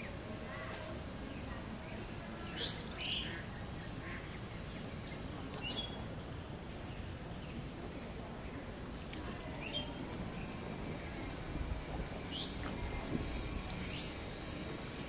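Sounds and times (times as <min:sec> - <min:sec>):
outdoor background hiss: 0:00.0 - 0:15.0
birds chirping: 0:12.1 - 0:12.7, 0:13.8 - 0:14.5.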